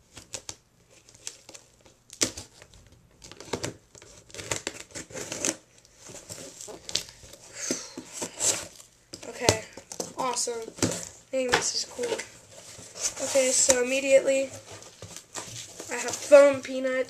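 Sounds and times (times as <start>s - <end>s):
packaging crinkling and ripping: 0.1s - 16.4s
knife cutting a package: 3.3s - 8.9s.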